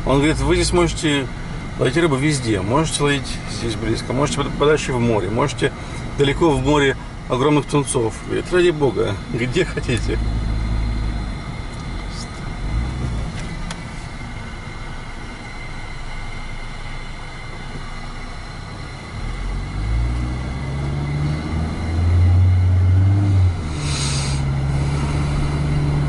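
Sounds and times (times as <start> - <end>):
car engine and road noise: 0.0 - 26.0
brief hiss: 23.7 - 25.2.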